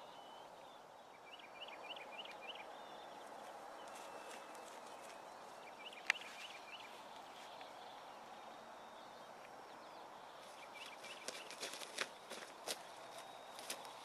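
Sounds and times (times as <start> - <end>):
small birds chirping: 0.0 - 14.0
light rustling footsteps: 3.2 - 7.8, 10.4 - 14.0.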